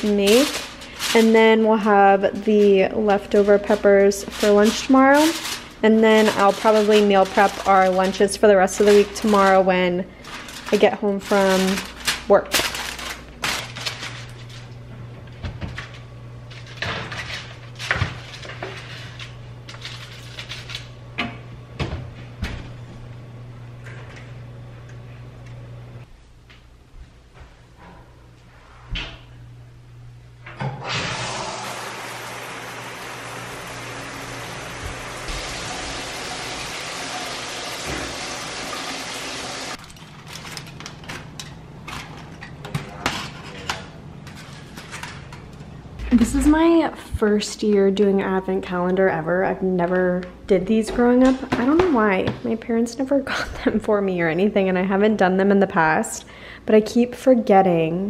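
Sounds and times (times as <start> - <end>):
foil tray crinkling and clicking: 0.0 - 14.7, 15.7 - 20.9, 39.8 - 42.3
steady low hum: 0.0 - 31.5, 40.8 - 54.7
oven door opening and shutting: 30.4 - 31.9
shower spray hissing: 30.8 - 39.8.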